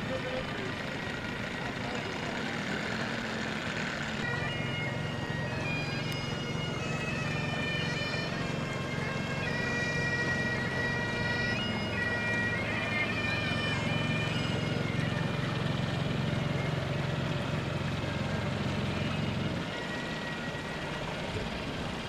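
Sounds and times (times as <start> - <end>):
bagpipes playing: 0.0 - 22.0.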